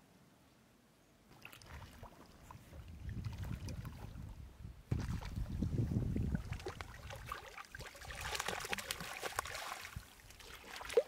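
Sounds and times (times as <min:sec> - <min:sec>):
water sloshing through net: 0:01.3 - 0:11.0
fish splashing at surface: 0:06.4 - 0:11.0.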